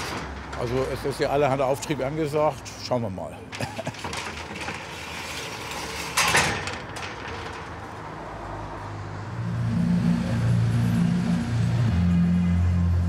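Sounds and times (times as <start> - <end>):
metal grille rattling scrape: 0.0 - 8.6
pulsing bass music: 9.4 - 13.0.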